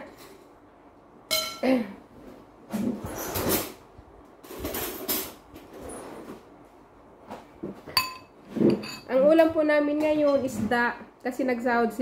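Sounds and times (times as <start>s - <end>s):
dishes clattering and clinking: 7.7s - 10.8s.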